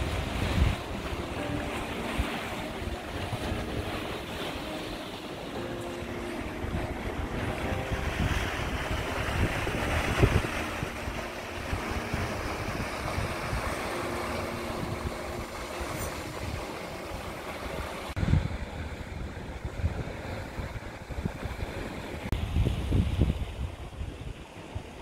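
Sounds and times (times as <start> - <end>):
waves breaking against rocks: 0.0 - 25.0
wind buffeting microphone: 0.0 - 25.0.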